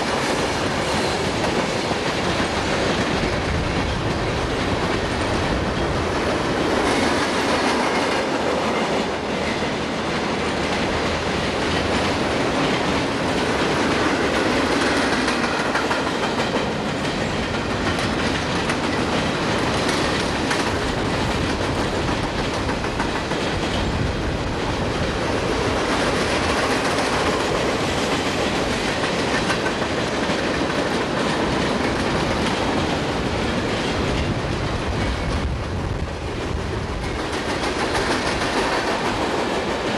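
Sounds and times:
steel wheels on rails: 0.0 - 39.9
wheels clicking over rail joints: 0.1 - 39.9.

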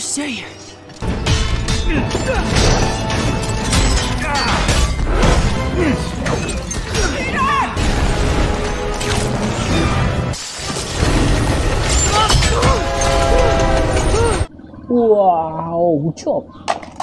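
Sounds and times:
background film music: 0.0 - 14.6
metal and glass crashes: 1.0 - 14.5.

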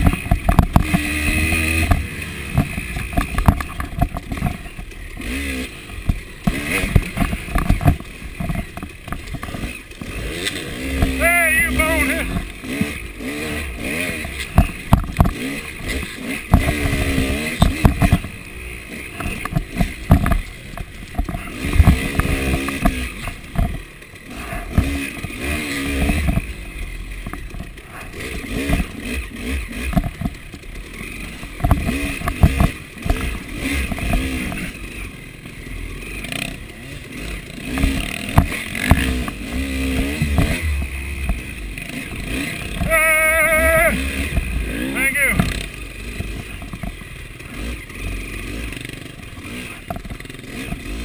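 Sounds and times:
bike knocking and clattering: 0.0 - 11.2, 14.2 - 24.0, 24.6 - 26.6, 27.2 - 34.7, 37.6 - 43.0, 45.3 - 47.7, 48.8 - 51.0
dirt bike engine revving: 0.0 - 51.0.

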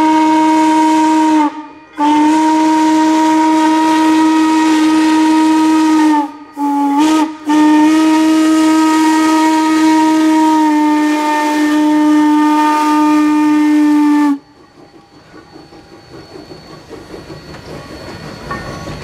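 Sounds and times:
steam locomotive whistle blasts: 0.0 - 14.6
steady steam hiss: 0.0 - 19.0.

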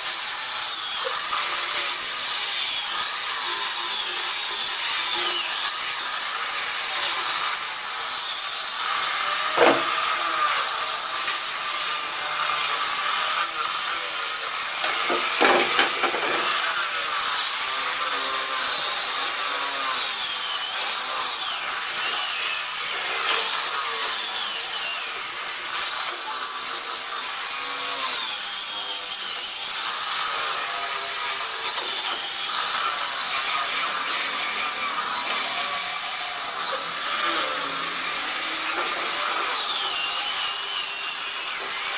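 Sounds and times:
sharp knocks on wood: 9.6 - 10.0.

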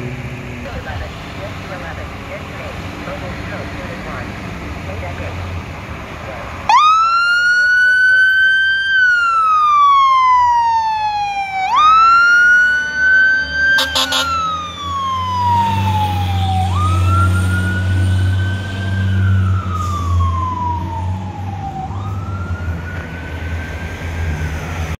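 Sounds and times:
fire truck siren wailing: 6.5 - 25.0
air horn honks: 13.8 - 14.5.

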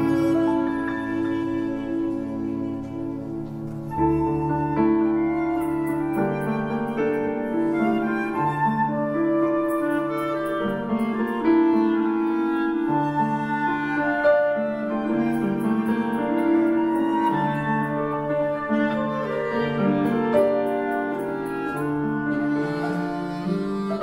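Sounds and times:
clarinets and saxophones chords: 0.0 - 3.5, 15.2 - 24.0
flute melody: 0.0 - 24.0
piano: 0.0 - 24.0.

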